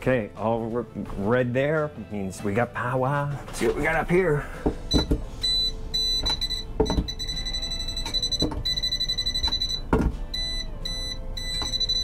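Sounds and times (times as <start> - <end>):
voltage tester beeping: 4.9 - 12.0.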